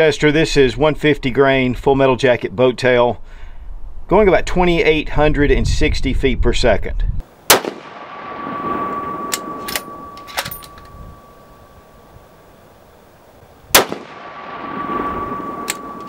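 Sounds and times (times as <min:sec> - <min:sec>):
rifle shot: 0:07.5 - 0:10.8, 0:13.7 - 0:16.0
rolling echo: 0:07.5 - 0:12.6, 0:13.7 - 0:16.0
high ringing tone: 0:08.3 - 0:12.2, 0:14.7 - 0:16.0
sharp clicks: 0:15.6 - 0:16.0.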